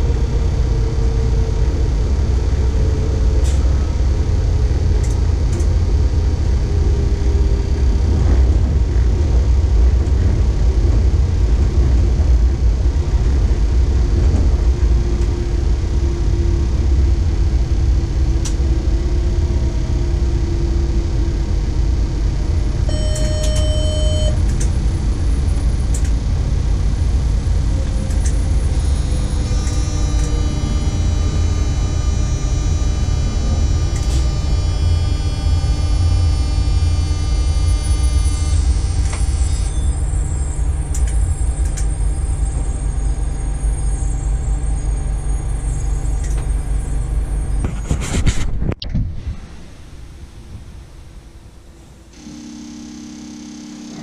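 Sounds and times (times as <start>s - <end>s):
train running gear rumble: 0.0s - 52.1s
high multi-tone whine: 15.1s - 54.0s
short electronic beep: 22.9s - 24.4s, 29.0s - 40.0s
gliding motor whine: 28.3s - 40.8s.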